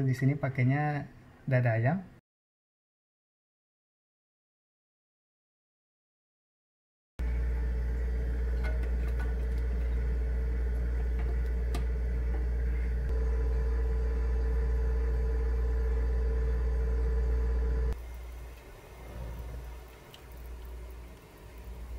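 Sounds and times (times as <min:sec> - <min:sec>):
low hum with faint whine: 0:07.2 - 0:21.9.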